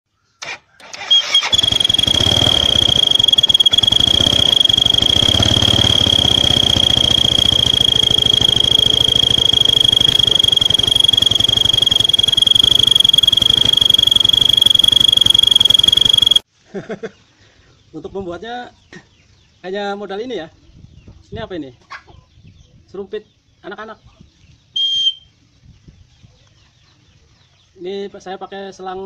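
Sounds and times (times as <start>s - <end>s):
toy trumpet whistling: 1.0s - 16.4s
motorcycle engine idling: 1.6s - 16.4s.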